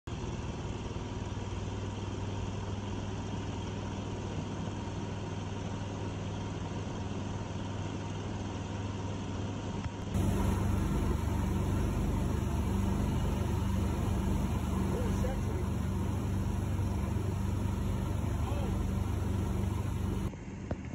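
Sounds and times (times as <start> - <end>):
boat motor running: 10.1 - 20.3.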